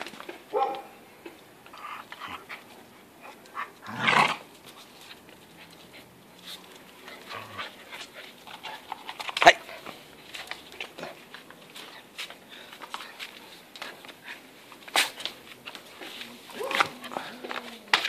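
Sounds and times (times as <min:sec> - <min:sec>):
dog panting: 0:05.0 - 0:15.2.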